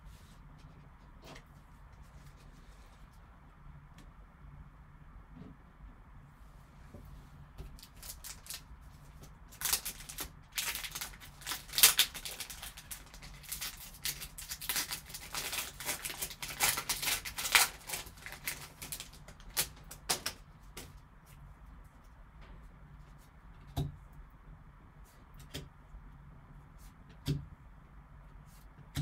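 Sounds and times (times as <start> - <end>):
foil wrapper crinkling and tearing: 7.8 - 20.8.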